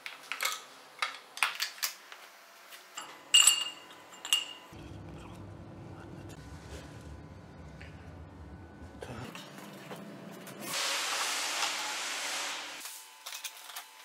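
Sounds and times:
steady low hum: 3.6s - 10.6s.

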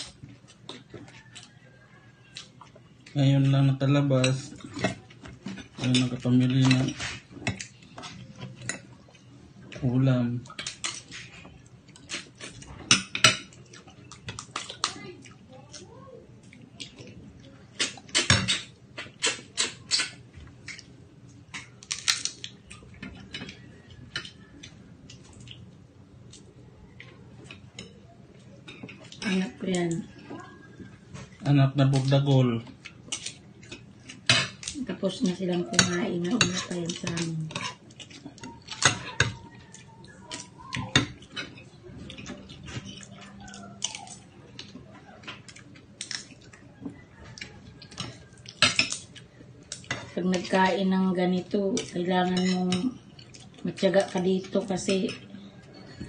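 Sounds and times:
mouth chewing and crunching: 0.0s - 3.4s, 4.4s - 50.6s, 51.8s - 56.0s
shellfish shell cracking: 21.6s - 22.6s.

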